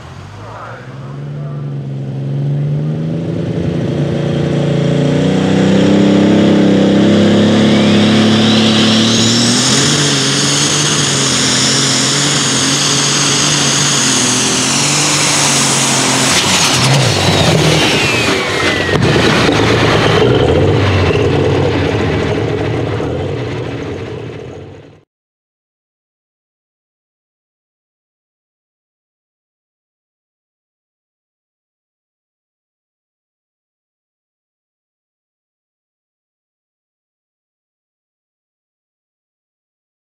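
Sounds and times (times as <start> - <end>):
high turbo whine: 0.0 - 25.0
tractor diesel engine under full power: 0.0 - 25.0.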